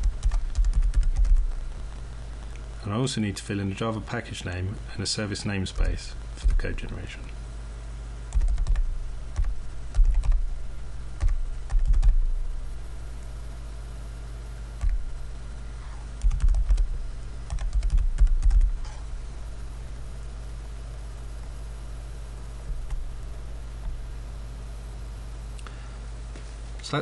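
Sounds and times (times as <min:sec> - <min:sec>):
computer keyboard typing: 0:00.0 - 0:01.5, 0:08.3 - 0:10.4, 0:11.2 - 0:12.2, 0:16.2 - 0:18.8
steady low hum: 0:00.0 - 0:27.0.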